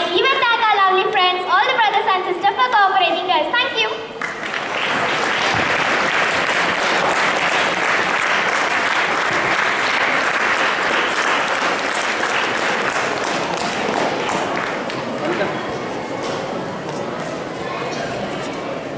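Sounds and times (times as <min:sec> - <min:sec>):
children applauding: 0:04.2 - 0:15.5.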